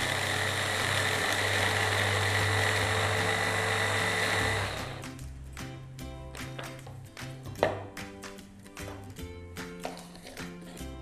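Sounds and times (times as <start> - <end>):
electric chopper running: 0.0 - 5.0
background music: 0.0 - 11.0.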